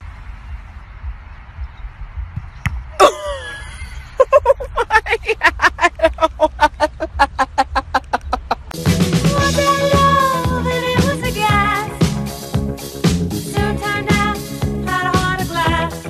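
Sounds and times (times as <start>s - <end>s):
person crying out: 3.0s - 3.8s
person laughing hard: 3.0s - 8.7s.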